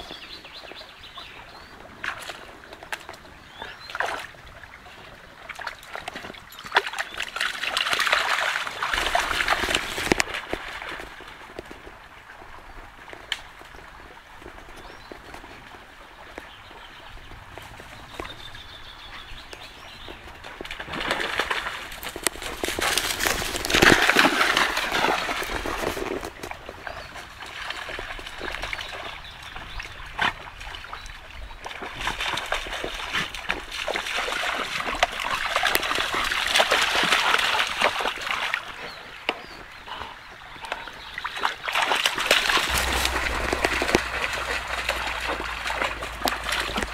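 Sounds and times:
stream trickling: 0:00.0 - 0:46.9
dog splashing through water: 0:05.5 - 0:11.8, 0:20.2 - 0:31.0, 0:31.6 - 0:38.9, 0:41.3 - 0:46.9.

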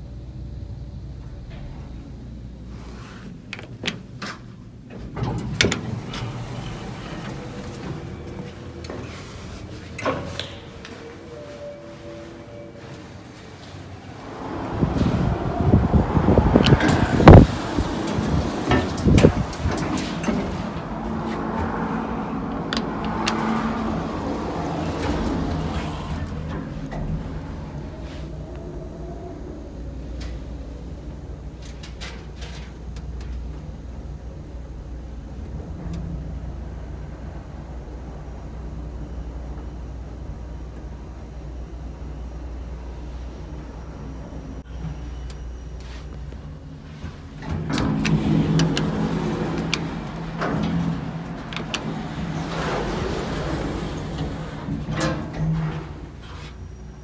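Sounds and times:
elevator car rumbling: 0:00.0 - 0:57.0
door motor humming: 0:03.3 - 0:57.0.

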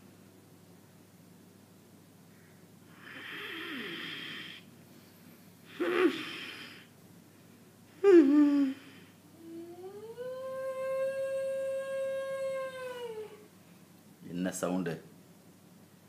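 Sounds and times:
person moaning: 0:08.0 - 0:13.4.

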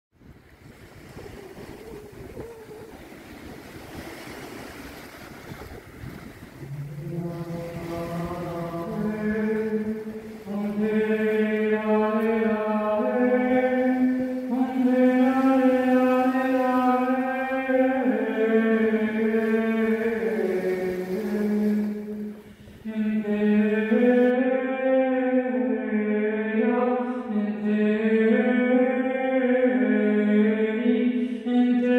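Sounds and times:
wind rumble on microphone: 0:00.1 - 0:12.6
waves on a sandy beach: 0:00.2 - 0:25.0
woman singing wordless chant: 0:01.1 - 0:03.3, 0:06.6 - 0:31.9
breath: 0:22.4 - 0:22.8.

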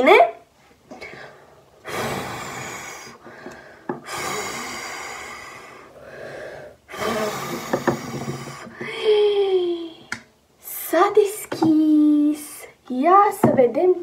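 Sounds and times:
woman blowing through pursed lips: 0:01.0 - 0:10.0.

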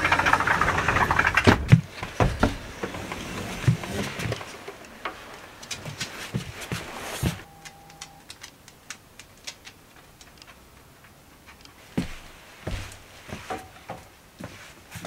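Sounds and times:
footsteps on wooden floor: 0:05.7 - 0:07.4, 0:11.9 - 0:15.0.

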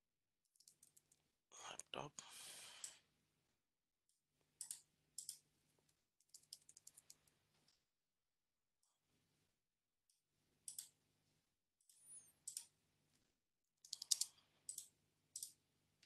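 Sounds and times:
mouse clicks: 0:13.8 - 0:15.6.

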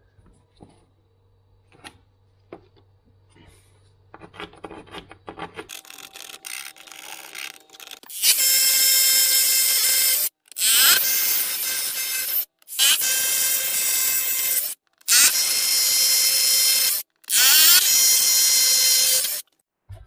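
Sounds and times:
power drill boring into wall: 0:05.7 - 0:19.5.

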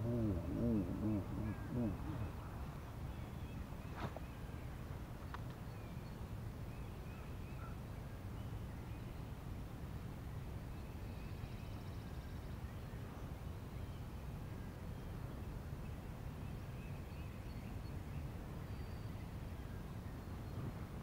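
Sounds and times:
steady low rumble: 0:00.0 - 0:03.4.

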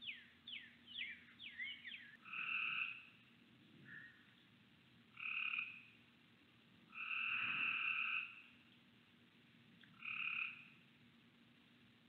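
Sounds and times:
frog calling: 0:00.0 - 0:03.2, 0:05.1 - 0:06.0, 0:06.9 - 0:08.6, 0:09.9 - 0:10.8.

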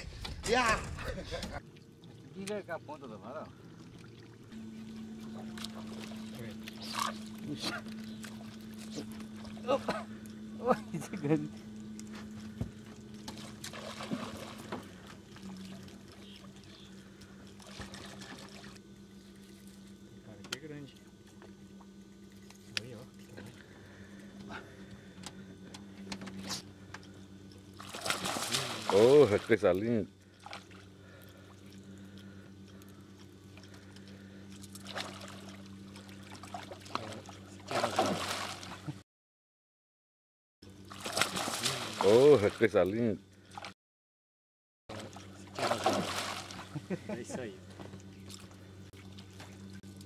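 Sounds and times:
steady low hum: 0:00.0 - 0:39.0, 0:40.6 - 0:43.8, 0:44.9 - 0:50.0
water lapping against boat: 0:01.3 - 0:20.2, 0:20.9 - 0:39.0, 0:40.7 - 0:43.8, 0:44.9 - 0:50.0
light splashes: 0:01.6 - 0:19.9, 0:27.0 - 0:38.9, 0:40.8 - 0:42.8, 0:44.9 - 0:50.0
water splashing from thrashing fish: 0:13.2 - 0:16.5, 0:17.5 - 0:18.8, 0:27.7 - 0:29.6, 0:34.6 - 0:38.9, 0:40.8 - 0:42.7, 0:44.9 - 0:46.8.

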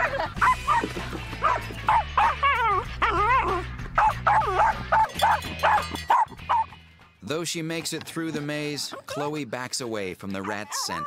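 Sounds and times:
background music: 0:00.0 - 0:11.0
dog whining: 0:01.4 - 0:06.7
small dog barking in yips: 0:04.0 - 0:06.7.

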